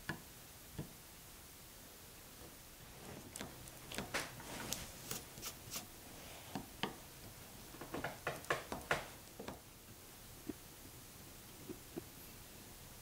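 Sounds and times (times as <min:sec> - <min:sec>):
chisel paring wood: 0:07.8 - 0:09.7.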